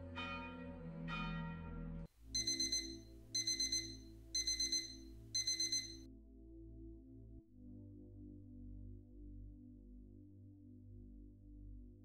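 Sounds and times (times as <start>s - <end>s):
alarm clock beeping: 2.4s - 6.0s
ringing tone: 2.4s - 6.0s.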